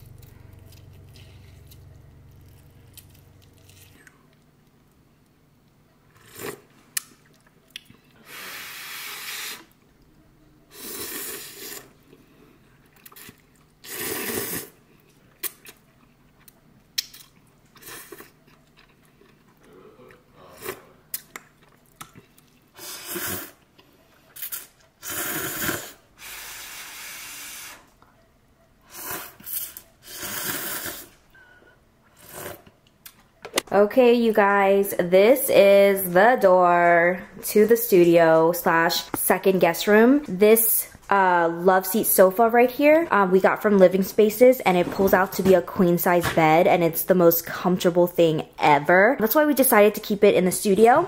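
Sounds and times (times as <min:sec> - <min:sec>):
slurping noodles: 0:06.1 - 0:06.7, 0:08.2 - 0:09.8, 0:10.7 - 0:12.2, 0:13.0 - 0:14.8, 0:22.7 - 0:23.7, 0:24.3 - 0:27.9, 0:28.9 - 0:31.2, 0:32.1 - 0:32.8.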